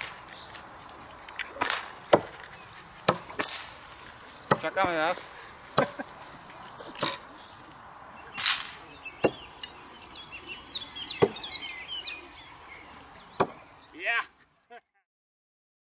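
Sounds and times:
knives thunking into wood: 0:03.1 - 0:03.7.

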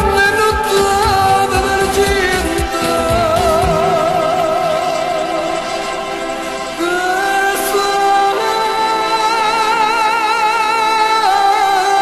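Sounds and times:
steady beat: 0:00.0 - 0:05.6.

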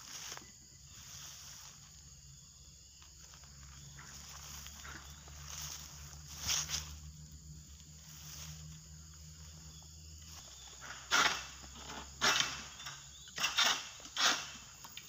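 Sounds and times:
footsteps crunching through grass: 0:00.0 - 0:10.9
faint outdoor background: 0:00.0 - 0:15.0.

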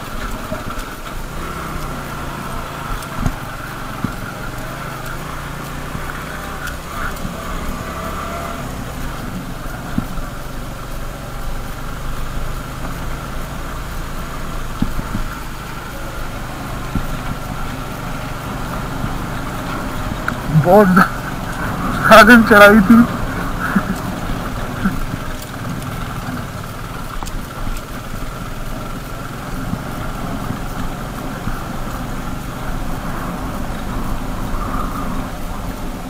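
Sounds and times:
motorcycle engine under load: 0:00.0 - 0:36.0
wind and road noise: 0:00.0 - 0:36.0.

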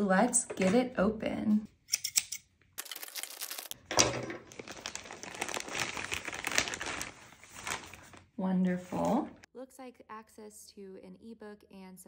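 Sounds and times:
plastic bag crinkling: 0:02.8 - 0:09.2
scissors cutting plastic bag: 0:04.4 - 0:07.1.

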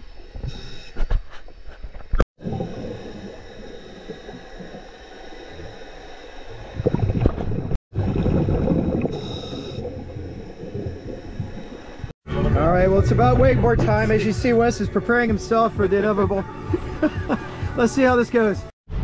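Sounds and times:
faint high whine: 0:00.0 - 0:07.3
underwater water rumbling: 0:02.0 - 0:14.2
exhaled air bubbles: 0:02.4 - 0:12.2.

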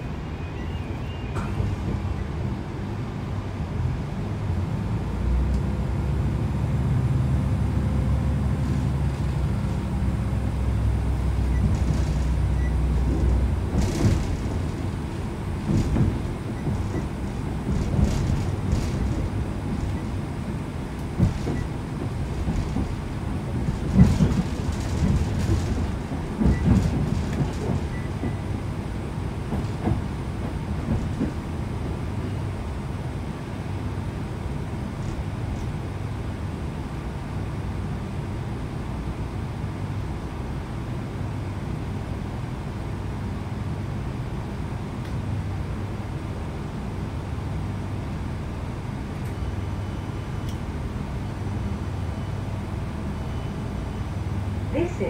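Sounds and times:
train diesel engine droning: 0:00.0 - 0:55.0
wheels clacking over rail joints: 0:11.5 - 0:20.2, 0:21.0 - 0:28.6.

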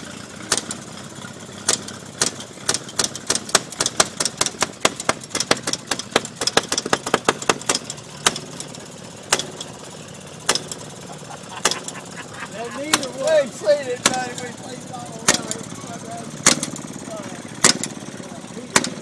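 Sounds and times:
small engine popping: 0:00.0 - 0:19.0.

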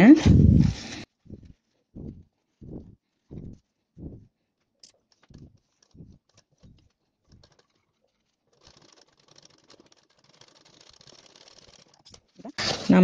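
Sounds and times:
soft low thumps: 0:00.1 - 0:04.4, 0:05.3 - 0:06.8
sewing machine stitching: 0:05.2 - 0:13.0.

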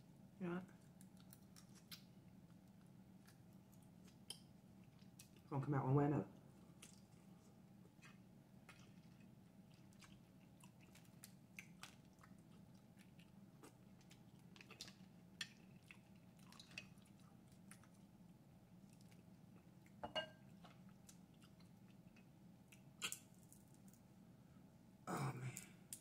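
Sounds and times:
crab shell cracking: 0:00.8 - 0:02.1
close chewing: 0:00.8 - 0:05.5, 0:06.7 - 0:23.3.

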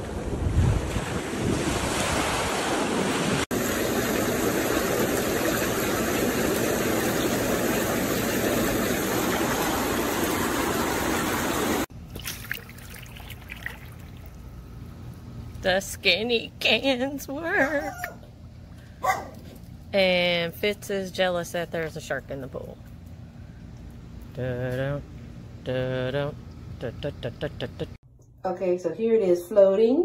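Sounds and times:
wind on microphone: 0:00.0 - 0:03.4
ocean surf: 0:00.0 - 0:04.9
hot tub jets bubbling: 0:03.5 - 0:17.6, 0:18.2 - 0:19.0.

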